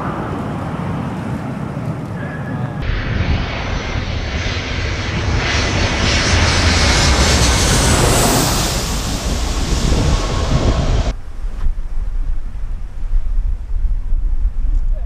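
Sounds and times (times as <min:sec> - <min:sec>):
jet engines roaring overhead: 0:00.0 - 0:11.2.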